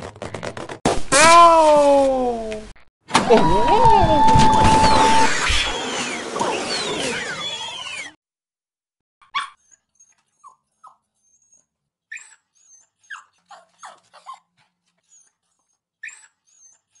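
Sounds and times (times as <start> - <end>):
dog whimpering and yipping: 6.7 - 8.1, 9.3 - 17.0.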